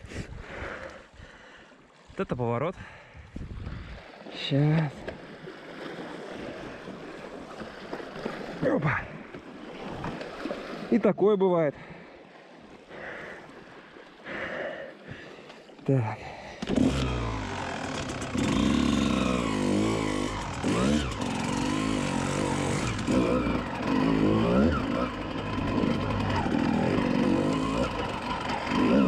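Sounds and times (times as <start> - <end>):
dirt bike engine revving: 16.6 - 29.0.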